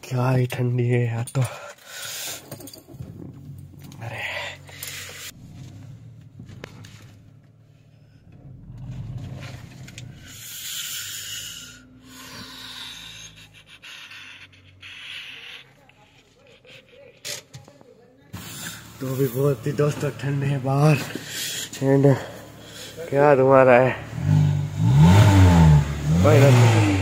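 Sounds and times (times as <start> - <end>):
car engine running: 3.2 - 13.6, 18.4 - 27.0.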